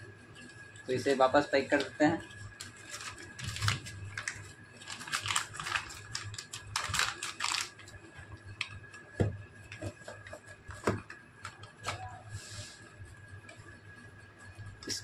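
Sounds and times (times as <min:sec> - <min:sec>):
plastic bag rustling: 0:01.3 - 0:08.0.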